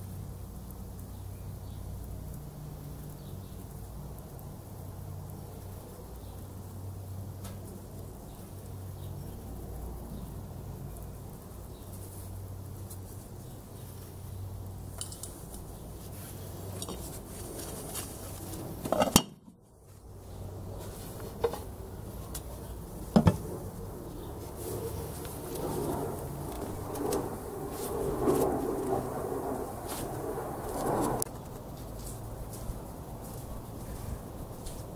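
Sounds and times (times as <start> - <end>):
low background rumble: 19.6 - 34.6.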